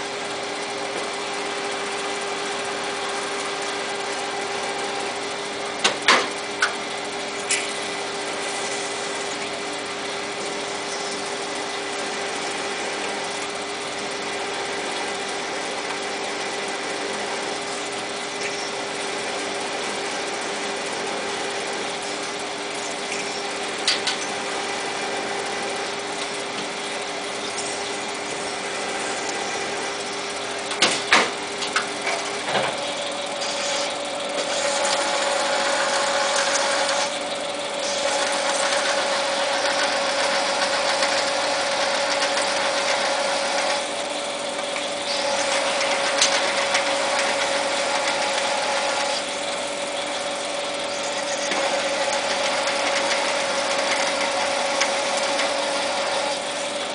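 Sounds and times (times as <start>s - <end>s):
lathe machine hum: 0.0s - 56.9s
metal cutting noise: 1.8s - 56.9s.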